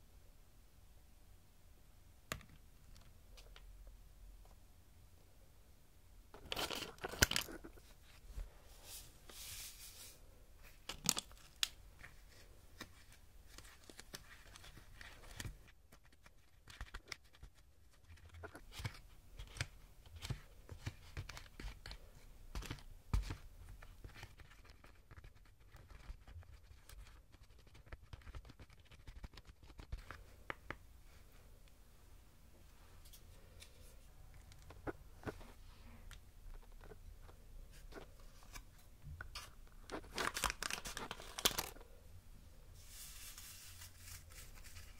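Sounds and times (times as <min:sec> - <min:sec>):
packet crinkling: 0:06.4 - 0:07.9, 0:39.4 - 0:41.8
foil packet tearing: 0:40.0 - 0:41.7.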